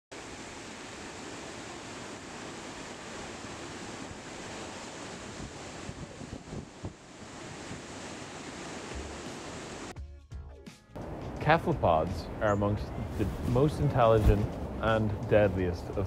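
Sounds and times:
surf washing over rocks: 0.1s - 9.9s
wind on microphone: 2.6s - 9.8s.

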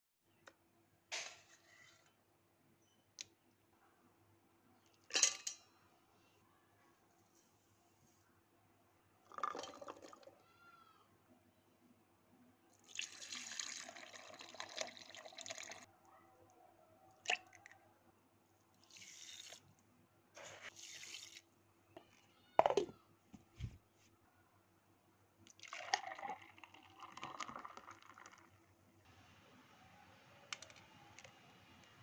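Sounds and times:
liquid pouring into glass jar: 9.3s - 10.3s, 12.8s - 15.9s, 25.5s - 28.6s.

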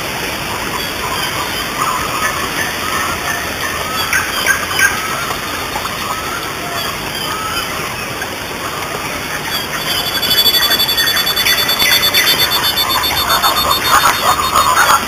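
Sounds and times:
bird chirps: 9.5s - 15.0s
high pulsing buzz: 9.6s - 15.0s.

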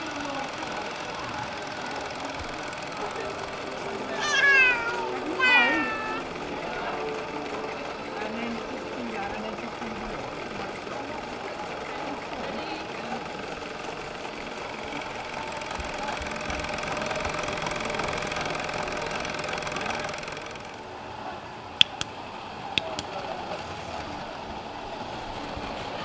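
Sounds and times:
model machinery whirring hum: 0.0s - 26.0s
sharp clicks: 21.8s - 22.2s.

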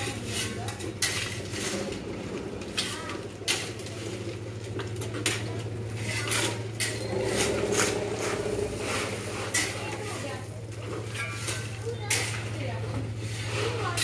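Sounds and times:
steady low hum: 5.5s - 11.8s
shovels scraping asphalt: 13.2s - 14.0s.

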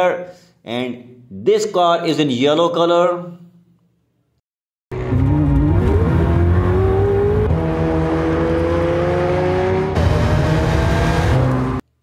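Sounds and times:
sports car engine accelerating: 4.9s - 11.8s.

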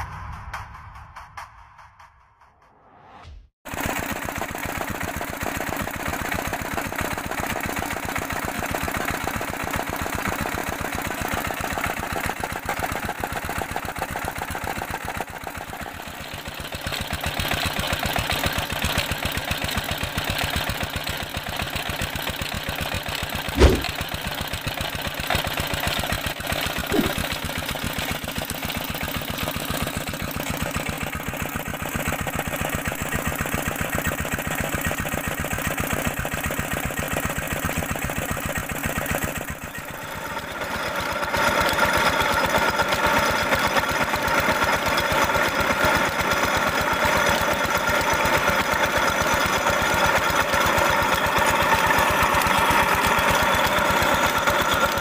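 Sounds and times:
sharp knock: 23.6s - 24.0s, 26.9s - 27.3s.

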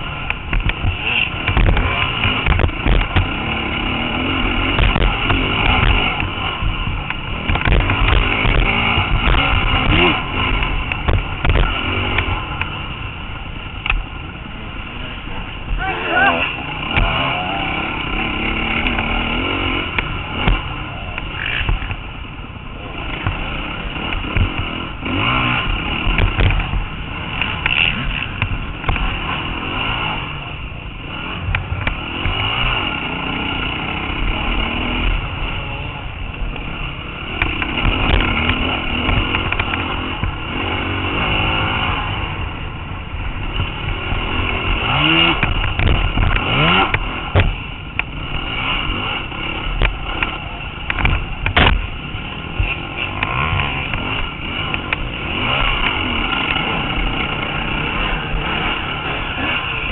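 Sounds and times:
dirt bike engine revving: 0.0s - 59.9s
knocks and clatter: 0.2s - 12.8s, 44.4s - 52.0s.

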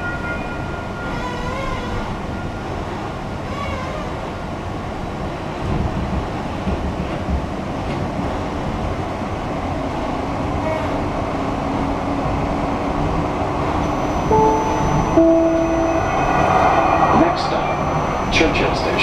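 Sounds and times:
rail car wheels rumbling: 0.0s - 19.0s
low steady tone: 13.9s - 18.4s.

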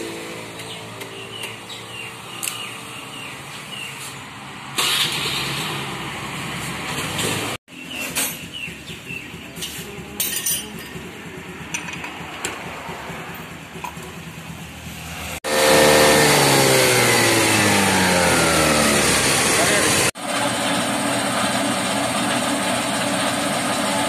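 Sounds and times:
vehicle engine running: 0.0s - 24.0s.

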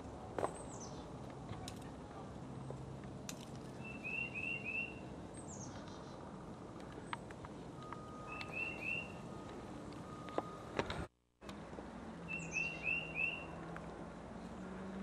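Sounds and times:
birds chirping: 0.4s - 1.2s, 3.7s - 10.6s, 12.2s - 13.6s.

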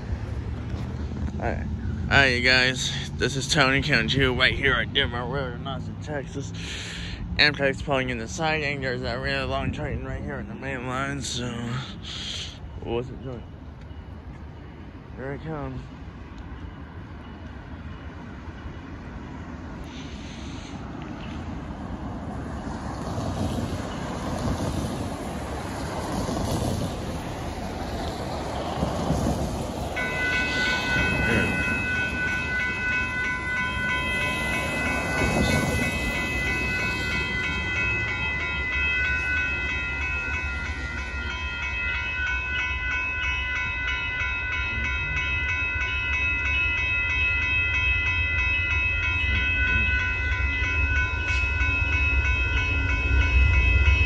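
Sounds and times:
railroad crossing bell ringing: 0.0s - 54.0s
train rumble: 0.0s - 54.0s
cars hissing on wet road: 6.5s - 7.2s, 19.9s - 21.0s.

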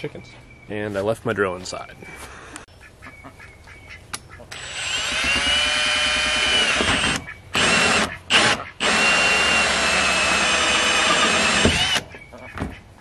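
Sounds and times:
cordless drill motor whine: 4.5s - 12.0s.

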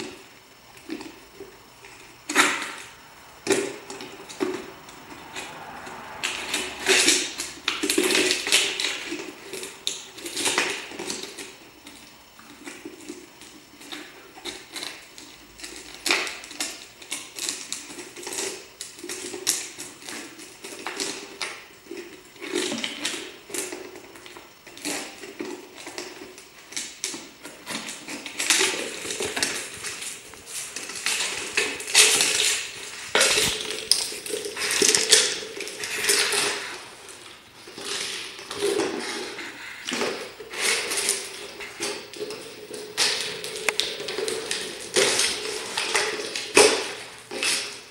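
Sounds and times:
plastic jar crackling on concrete: 12.6s - 47.9s.

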